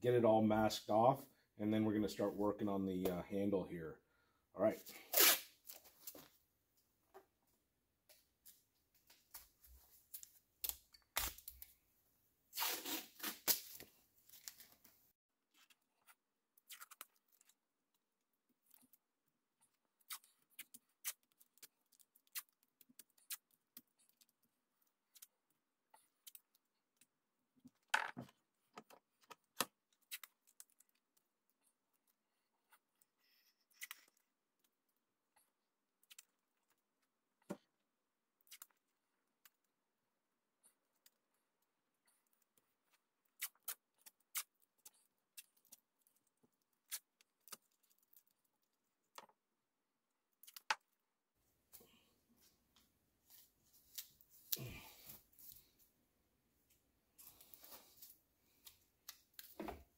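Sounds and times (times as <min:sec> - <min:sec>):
tape ripping: 0:05.0 - 0:05.8, 0:12.6 - 0:14.7.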